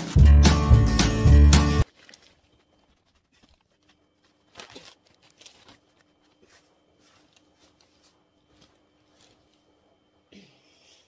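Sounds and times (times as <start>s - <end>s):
paper bedding and hay rustling: 1.8s - 9.7s.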